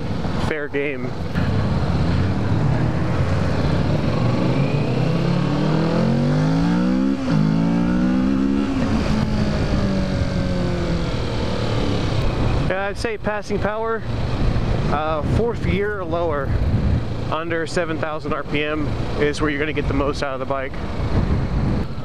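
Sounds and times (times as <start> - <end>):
motorcycle engine accelerating: 0.0 - 13.0
wind noise on microphone: 1.3 - 12.9, 14.0 - 17.6, 19.7 - 22.0.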